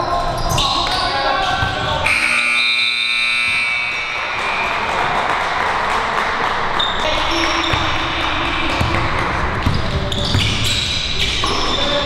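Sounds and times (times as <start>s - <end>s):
basketball bouncing on wooden floor: 7.5s - 10.8s.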